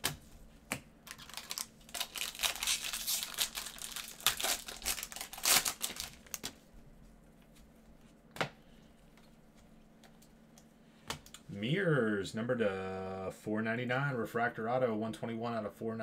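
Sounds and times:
foil wrapper tearing and crinkling: 0:01.1 - 0:06.6.

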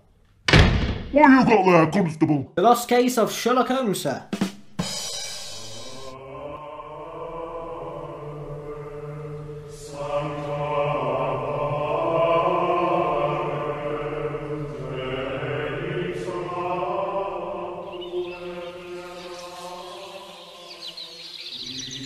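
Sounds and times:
men chanting in held notes: 0:05.6 - 0:22.0.

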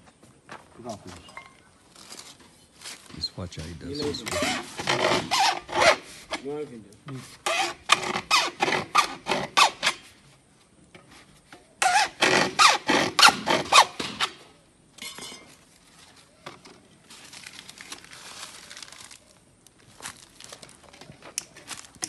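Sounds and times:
hacksaw cutting plastic pipe: 0:04.2 - 0:06.4, 0:07.4 - 0:10.0, 0:11.8 - 0:14.4.

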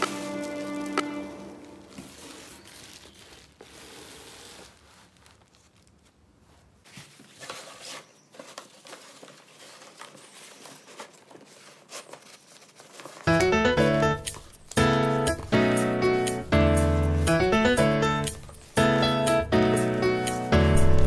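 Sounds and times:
fabric crinkling and clicks: 0:00.0 - 0:13.3.

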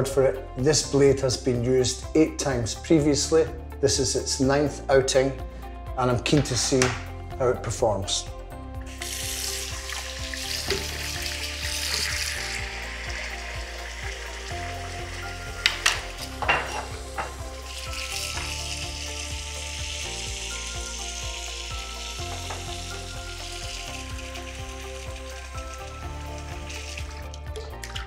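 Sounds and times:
background music: 0:00.0 - 0:28.0
water running from tap into sink: 0:08.9 - 0:28.0.

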